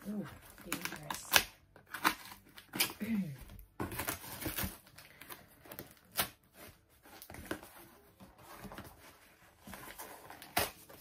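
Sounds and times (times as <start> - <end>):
crinkles and clicks: 0.4 - 6.4.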